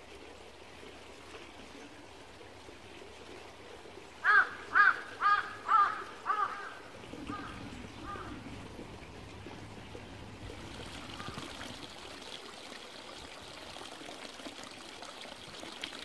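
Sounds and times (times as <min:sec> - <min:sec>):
small stream trickling: 0:00.0 - 0:16.0
crow cawing: 0:04.2 - 0:08.4, 0:11.2 - 0:11.5.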